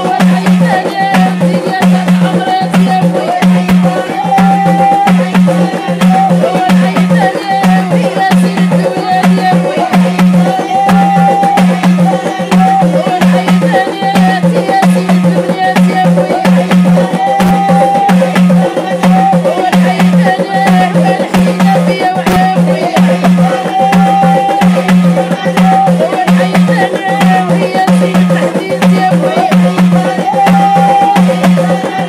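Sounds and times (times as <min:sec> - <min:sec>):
hand drum beaten in quick rhythm: 0:00.0 - 0:32.0.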